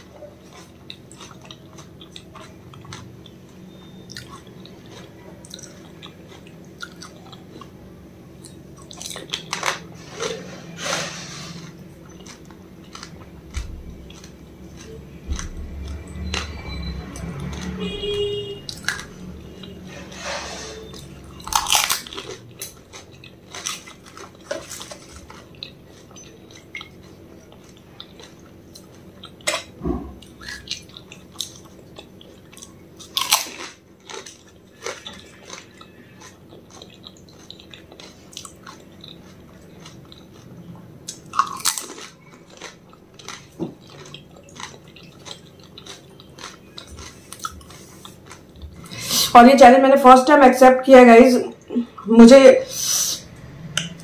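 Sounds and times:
chewing: 0:00.0 - 0:10.8, 0:11.4 - 0:49.3
crisp shells crunching: 0:21.0 - 0:29.1, 0:30.4 - 0:40.5, 0:41.1 - 0:48.5.

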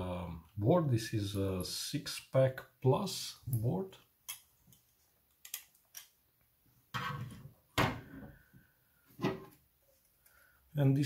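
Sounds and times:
knocks and scrapes on wooden table: 0:06.9 - 0:08.3, 0:09.1 - 0:09.6.

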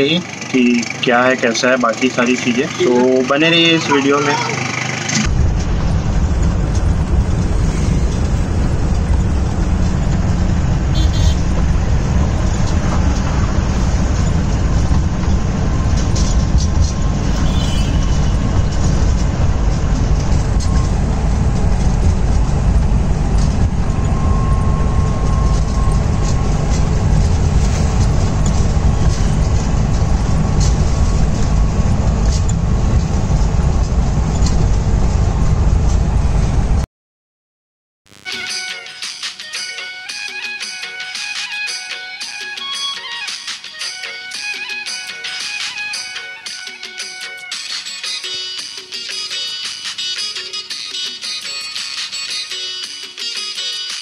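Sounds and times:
car interior engine rumble: 0:00.0 - 0:36.8.

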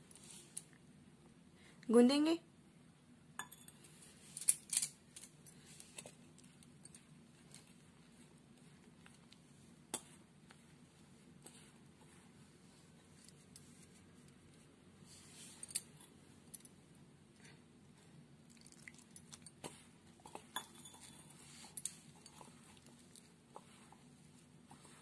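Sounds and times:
metal bangle clinking on bowl: 0:03.4 - 0:03.8, 0:20.3 - 0:22.6
hands kneading damp dough: 0:21.3 - 0:25.0.

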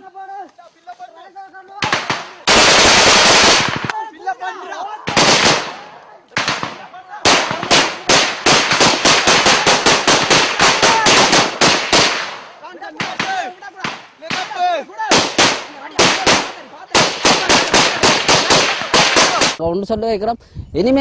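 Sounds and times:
voices shouting: 0:00.0 - 0:19.6
automatic gunfire bursts: 0:01.8 - 0:03.9, 0:05.1 - 0:05.8, 0:06.4 - 0:12.4, 0:15.1 - 0:19.6.

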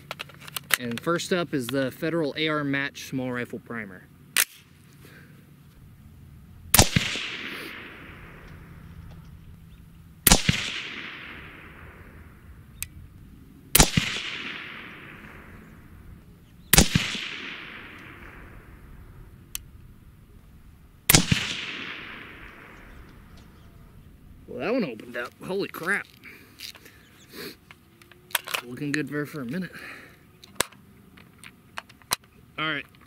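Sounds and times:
suppressed rifle shots: 0:06.7 - 0:09.6, 0:10.2 - 0:19.8, 0:21.0 - 0:23.8.

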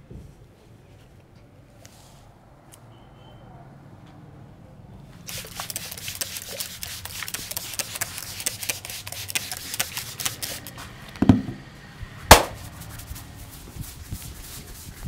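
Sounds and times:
loud smacks: 0:12.3 - 0:12.7.

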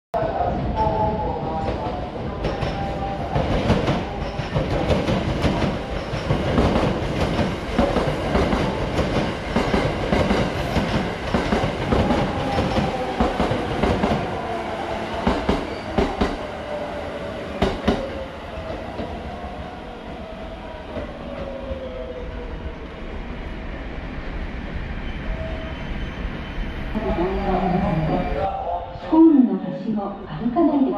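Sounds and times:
train rumble: 0:00.2 - 0:25.7
electric train whine: 0:02.7 - 0:28.8.

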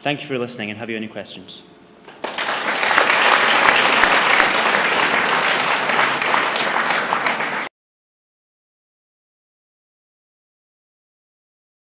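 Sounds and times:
audience applauding: 0:02.1 - 0:07.7.

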